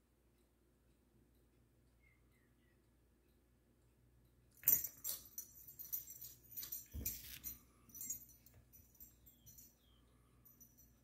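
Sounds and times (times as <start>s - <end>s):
collar tags jingling: 4.6s - 11.0s.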